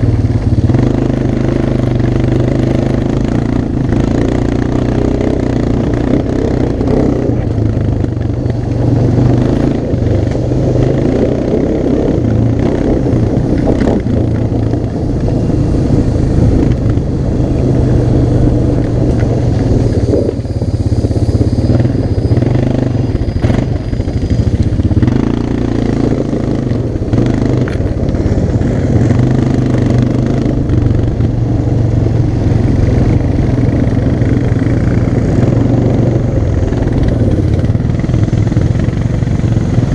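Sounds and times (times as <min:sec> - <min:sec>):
atv engine running: 0:00.0 - 0:39.9.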